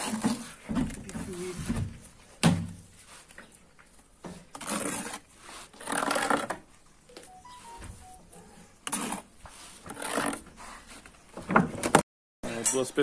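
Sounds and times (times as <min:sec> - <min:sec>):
trowel scraping mortar: 0:00.0 - 0:01.7, 0:04.3 - 0:06.7, 0:08.8 - 0:11.1.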